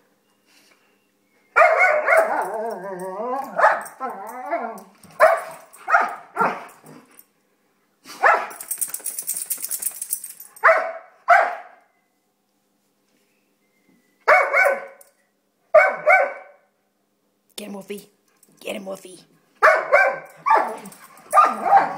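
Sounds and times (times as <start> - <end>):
dogs barking: 1.6 - 4.6, 5.2 - 6.8, 8.2 - 8.6, 10.6 - 11.8, 14.3 - 15.0, 15.7 - 16.6, 19.6 - 21.9.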